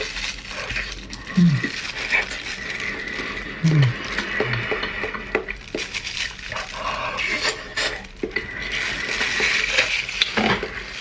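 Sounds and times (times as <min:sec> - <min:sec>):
plastic gloves crinkling: 0:00.0 - 0:11.0.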